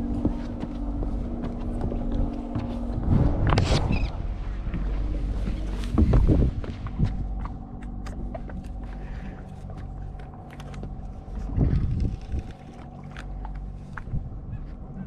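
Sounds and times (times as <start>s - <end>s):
low rush: 0.0s - 9.6s
boat engine running: 0.0s - 15.0s.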